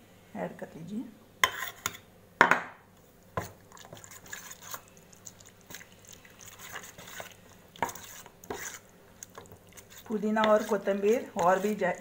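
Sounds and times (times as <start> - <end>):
spoon stirring wet marinade: 3.4 - 12.0.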